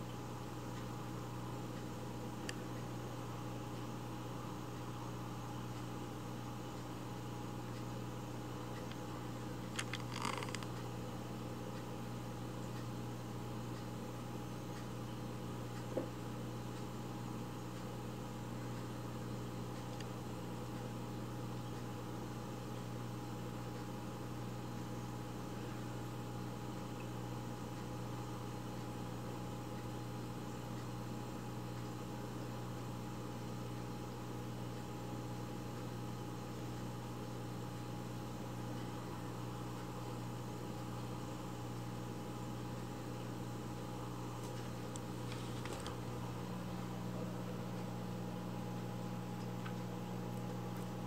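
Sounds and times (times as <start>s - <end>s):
low appliance hum: 0.0s - 51.0s
faint ticks: 6.6s - 14.0s, 26.8s - 32.5s
constant hiss: 7.6s - 11.8s.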